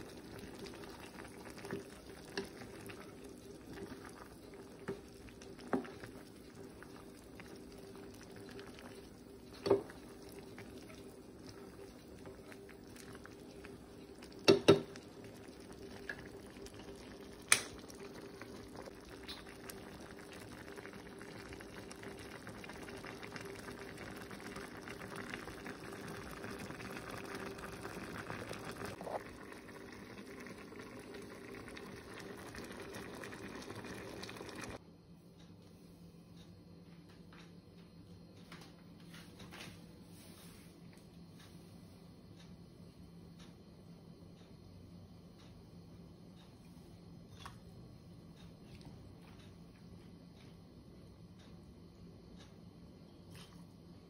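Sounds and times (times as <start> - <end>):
broth bubbling at a boil: 0.0 - 34.8.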